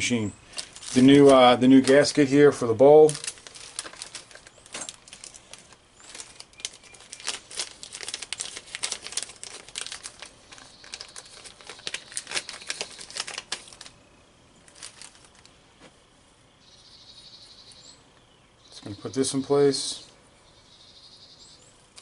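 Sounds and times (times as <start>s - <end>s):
plastic bag crinkling: 0.4s - 14.0s, 14.6s - 15.6s.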